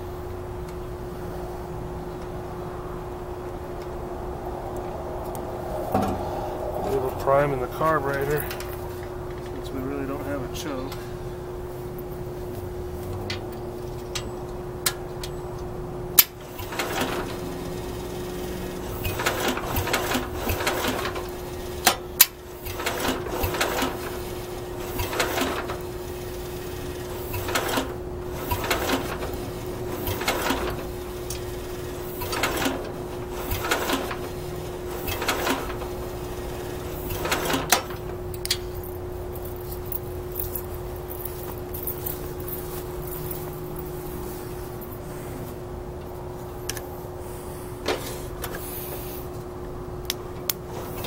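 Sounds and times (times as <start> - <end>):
tractor engine cranking: 6.9 - 11.1, 13.0 - 43.9.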